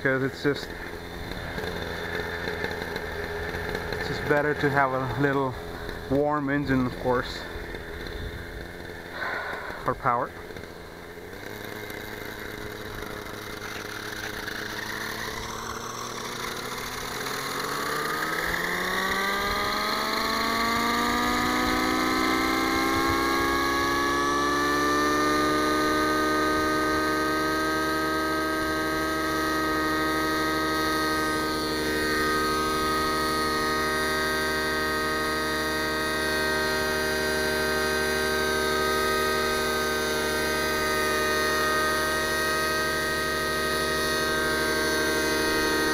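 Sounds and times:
model helicopter engine whine: 0:00.0 - 0:45.9.

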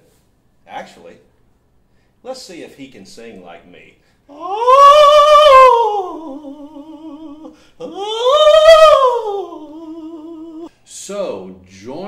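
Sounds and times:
man singing mock-operatic: 0:04.3 - 0:10.7.

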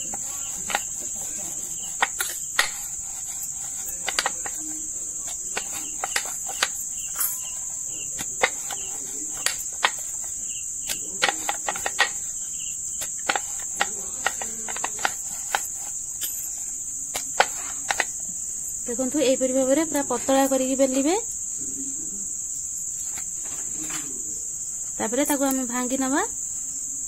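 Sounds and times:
rolling pin rolling dough: 0:00.0 - 0:21.3.

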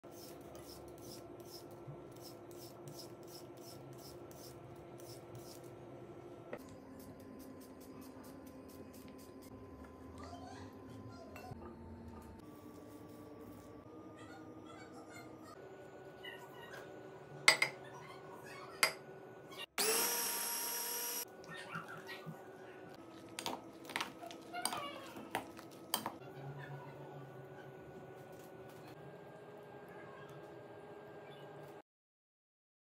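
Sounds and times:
food chopper motor whirring: 0:19.8 - 0:21.3.

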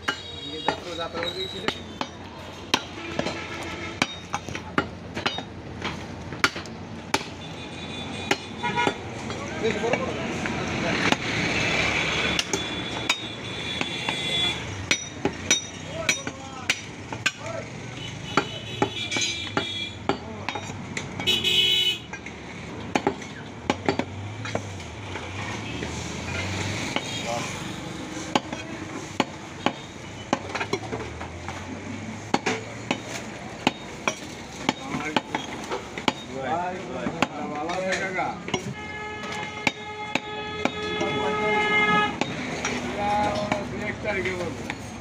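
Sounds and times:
cleaver chopping meat on wood: 0:04.0 - 0:07.4, 0:08.2 - 0:09.1, 0:18.1 - 0:21.3, 0:22.8 - 0:25.3, 0:28.2 - 0:31.7, 0:32.3 - 0:36.3, 0:38.4 - 0:40.8.

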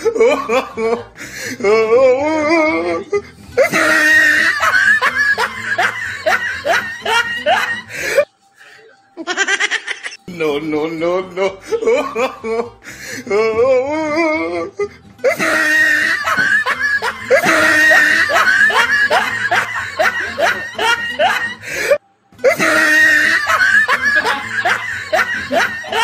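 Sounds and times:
laughter: 0:00.0 - 0:01.2, 0:02.4 - 0:08.2, 0:09.2 - 0:10.2, 0:11.6 - 0:12.8, 0:14.8 - 0:26.0
comedic background music: 0:00.0 - 0:26.0.

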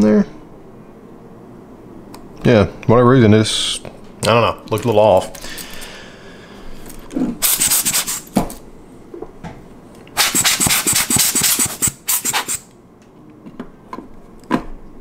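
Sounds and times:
hand tool scratching camera body: 0:10.2 - 0:12.6.

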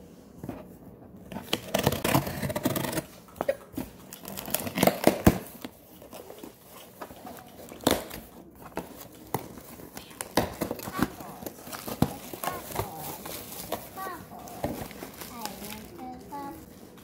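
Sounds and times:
packing tape tearing: 0:01.4 - 0:03.1, 0:04.0 - 0:16.2
cardboard flaps crinkling: 0:03.8 - 0:17.0.

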